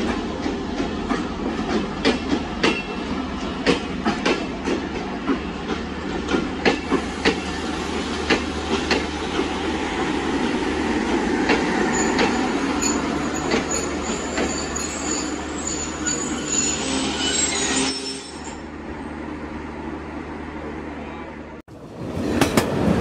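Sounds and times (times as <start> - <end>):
train wheels clacking over rail joints: 0.0 - 9.6, 11.3 - 14.7, 22.1 - 23.0
train rumble: 0.0 - 15.7, 18.5 - 23.0
high-pitched wheel squeal: 11.8 - 18.7.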